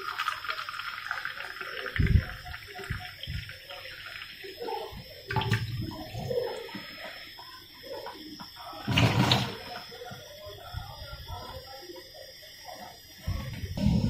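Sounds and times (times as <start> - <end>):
tap water running into a sink: 0.0 - 9.9.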